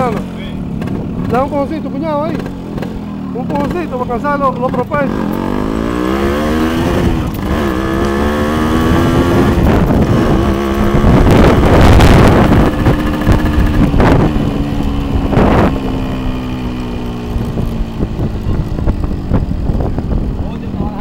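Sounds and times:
small motorcycle engine running: 0.0s - 21.0s
wind buffeting microphone: 5.1s - 21.0s.

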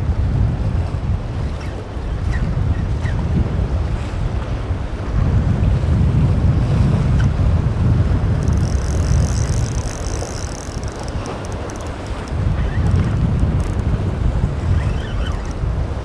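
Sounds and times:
surf washing against rocks: 0.0s - 16.0s
wind buffeting microphone: 0.0s - 16.0s
fishing reel whirring: 8.3s - 15.7s
light rapid ticking: 8.4s - 13.9s.

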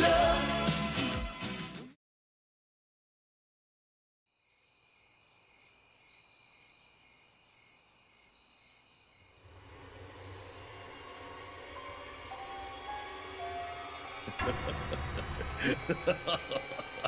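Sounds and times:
crickets chirping: 4.3s - 17.0s
low rumble: 14.1s - 17.0s.

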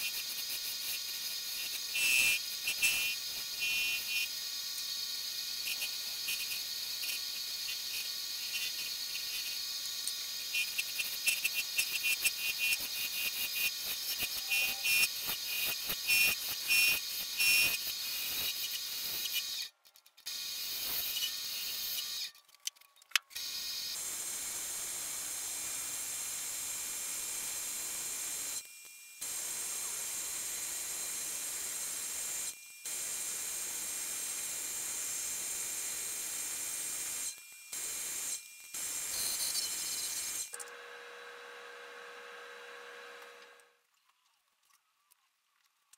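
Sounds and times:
wood lathe motor whine: 39.2s - 43.7s.

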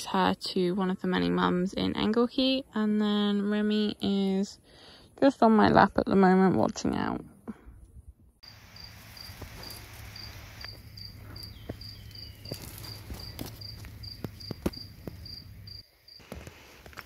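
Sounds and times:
cricket chirping: 8.4s - 16.4s.

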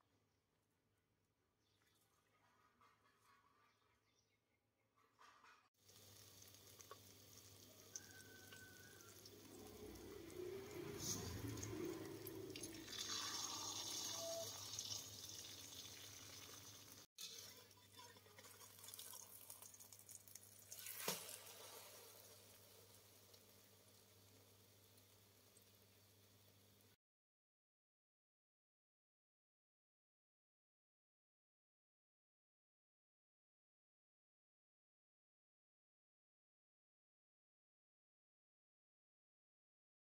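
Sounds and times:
egg sizzling in oil: 5.8s - 27.0s.

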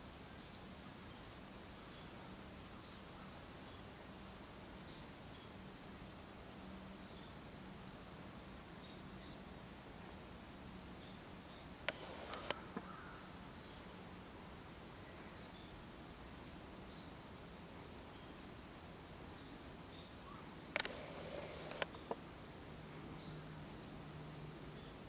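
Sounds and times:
sharp clicks: 11.8s - 12.9s, 20.7s - 22.2s.

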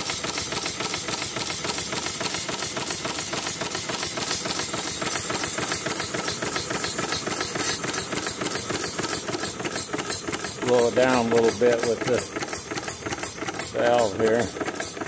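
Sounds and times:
steam engine mechanical clatter: 0.0s - 15.0s.

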